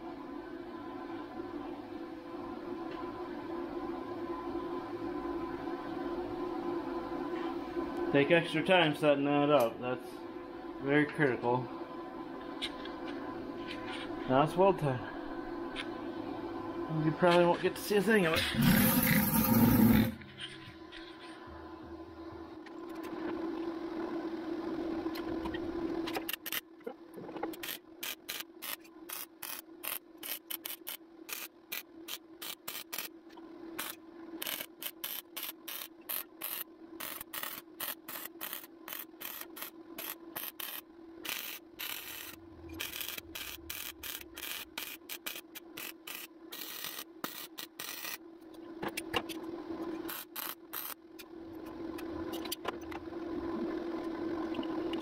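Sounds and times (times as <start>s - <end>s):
steady hum: 0.0s - 55.0s
welder arc crackling: 27.6s - 33.1s, 33.8s - 48.2s, 50.0s - 51.0s.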